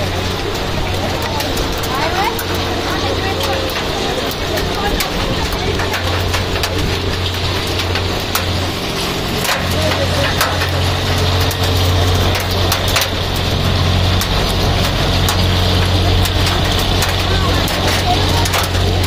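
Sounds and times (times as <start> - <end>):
hailstones ticking on hard surfaces: 0.0 - 19.0
low engine hum: 0.0 - 19.0.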